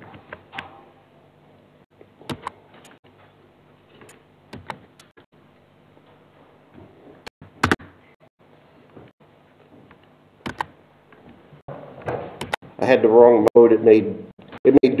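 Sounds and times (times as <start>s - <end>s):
mouse and keyboard clicks: 2.3s - 3.0s, 10.5s - 10.7s.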